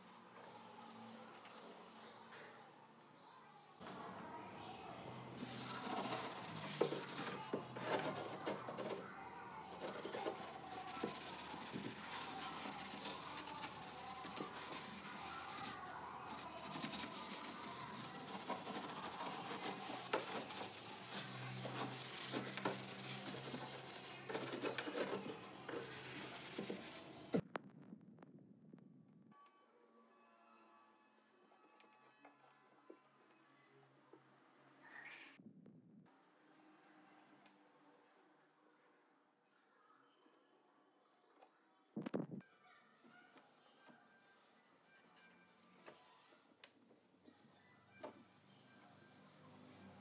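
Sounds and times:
sponge scrubbing steel panel: 5.4 - 9.0, 9.7 - 27.0.

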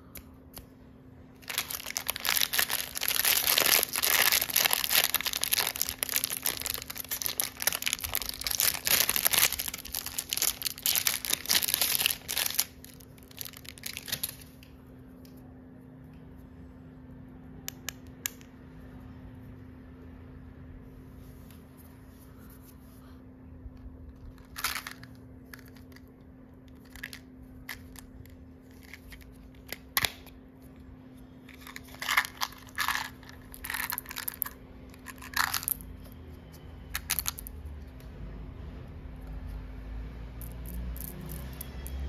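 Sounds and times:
crinkly plastic rustles: 1.4 - 14.6, 24.1 - 26.1, 31.4 - 35.9, 37.0 - 37.5.

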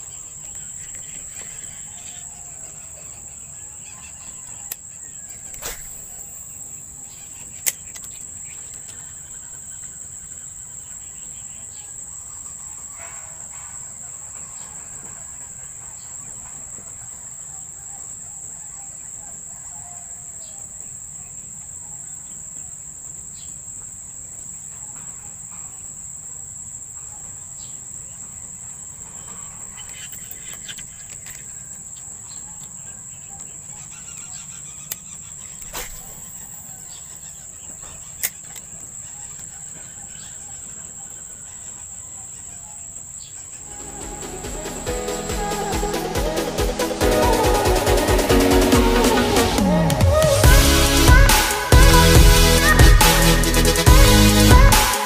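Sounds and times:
insect chirring: 0.0 - 55.0
sharp clicks: 7.6 - 9.0.

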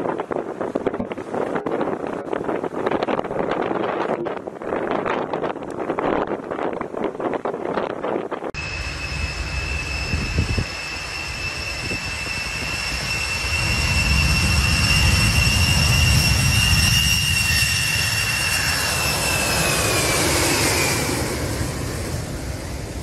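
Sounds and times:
jet engine whine: 8.4 - 23.0.

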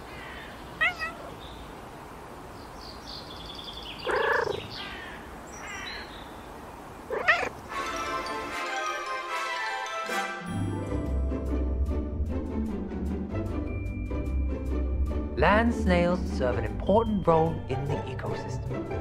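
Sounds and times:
cat meowing: 0.8 - 1.4, 4.0 - 4.6, 7.1 - 7.6
music: 7.7 - 19.0.

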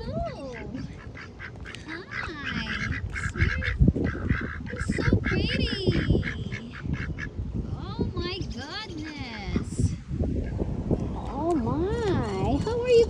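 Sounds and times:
ducks quacking: 0.2 - 7.5, 8.4 - 9.9.

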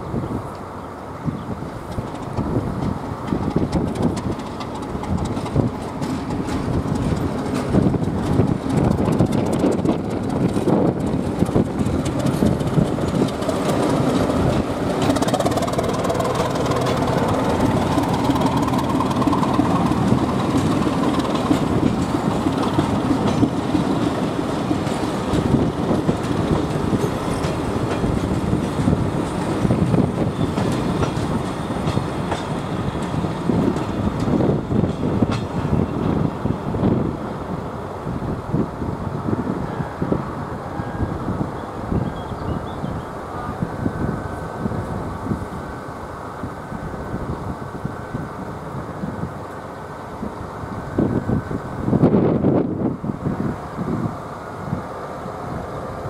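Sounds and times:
diesel locomotive passing: 0.0 - 56.0
train coaches clattering over rails: 1.6 - 37.1.

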